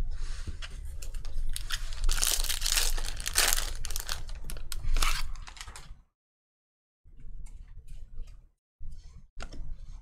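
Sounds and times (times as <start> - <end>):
foil wrapper tearing and crinkling: 1.5 - 5.9.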